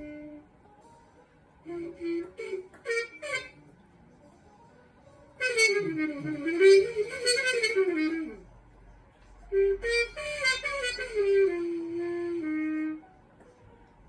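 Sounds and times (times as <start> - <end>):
muted brass horn melody: 0.0 - 0.5, 1.6 - 3.8, 5.3 - 8.5, 9.5 - 13.2.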